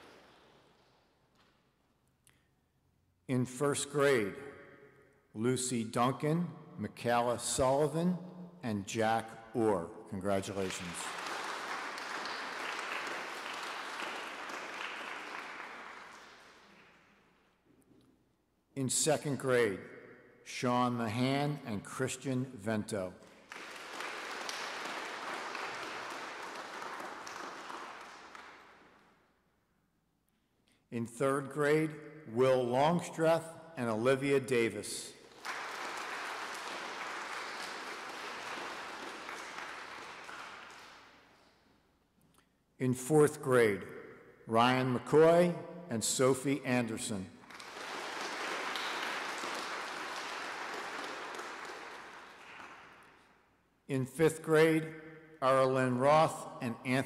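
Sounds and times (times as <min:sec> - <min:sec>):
audience applauding: 0:10.6 - 0:17.0, 0:23.4 - 0:29.0, 0:35.2 - 0:41.2, 0:47.4 - 0:53.3.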